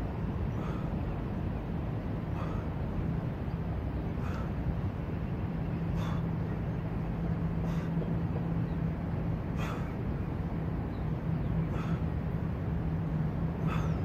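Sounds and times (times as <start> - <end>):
constant low hum: 0.0 - 14.0
man breathing sharply: 2.3 - 2.8, 4.2 - 4.7, 5.9 - 6.4, 7.6 - 8.0, 9.5 - 10.0, 11.7 - 12.1, 13.6 - 14.0.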